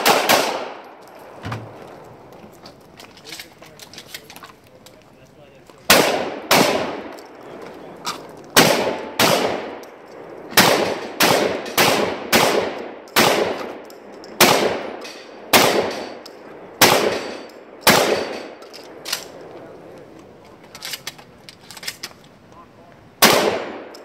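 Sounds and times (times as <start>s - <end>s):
gunshots with echo: 0.0s - 1.0s, 5.9s - 7.2s, 8.6s - 13.8s, 14.4s - 18.6s, 23.2s - 24.0s.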